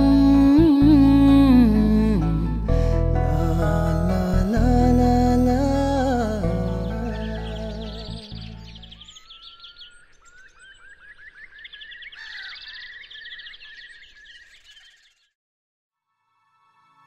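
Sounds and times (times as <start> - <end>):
soft music: 0.0 - 9.6
songbirds singing: 5.3 - 15.4.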